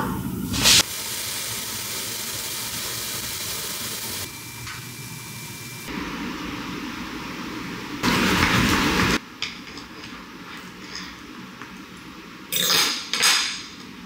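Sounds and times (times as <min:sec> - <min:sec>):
vegetables sizzling in a pan: 0:00.6 - 0:04.5.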